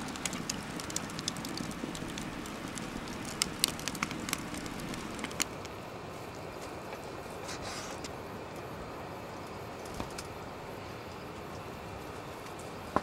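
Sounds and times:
logs popping: 0:00.0 - 0:05.8
campfire crackling: 0:00.0 - 0:13.0.

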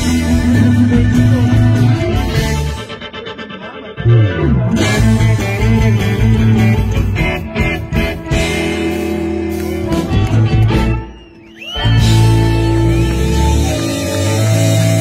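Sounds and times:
electric guitar chord stabs: 0:00.0 - 0:10.5
bass guitar: 0:00.0 - 0:15.0.

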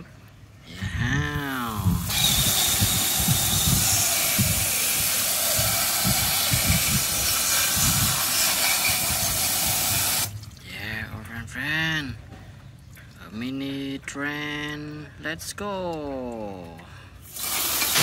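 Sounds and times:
hose nozzle spraying water: 0:01.9 - 0:10.5, 0:17.2 - 0:18.0.

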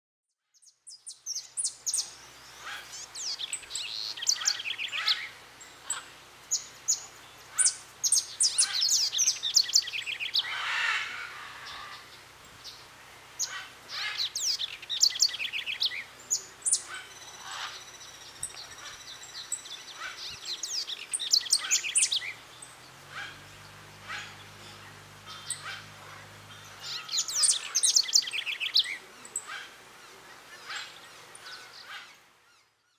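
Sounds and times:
birds chirping: 0:00.6 - 0:32.9
bird squawks: 0:04.0 - 0:06.1, 0:08.5 - 0:12.1, 0:13.4 - 0:15.8, 0:16.7 - 0:17.9, 0:19.9 - 0:22.4, 0:23.1 - 0:29.8.

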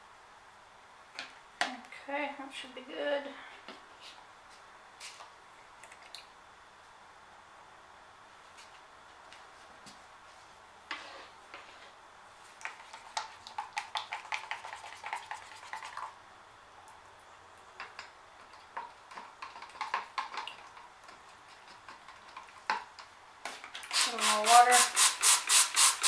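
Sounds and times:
stick scraping plastic cup: 0:12.6 - 0:16.1.

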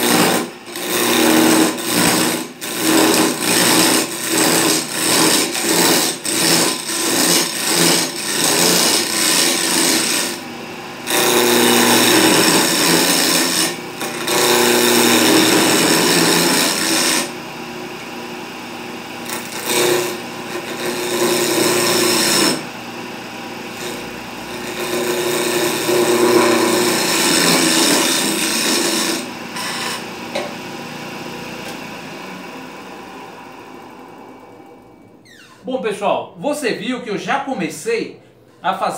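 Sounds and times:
wood lathe turning tool scraping: 0:00.0 - 0:18.6, 0:19.2 - 0:35.1.

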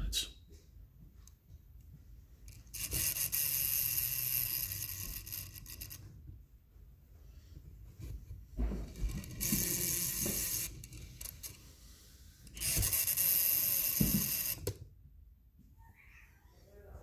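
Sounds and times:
wheel and axle whirring rattle: 0:02.5 - 0:06.2, 0:08.6 - 0:14.7.

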